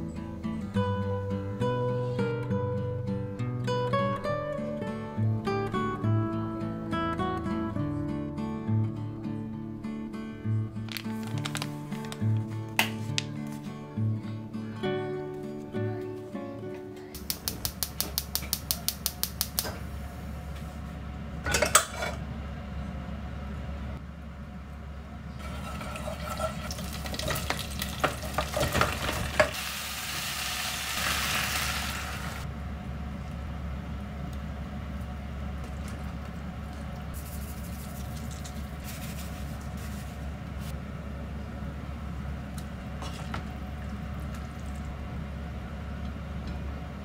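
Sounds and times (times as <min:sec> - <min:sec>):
food sizzling in hot oil: 0:26.7 - 0:32.4.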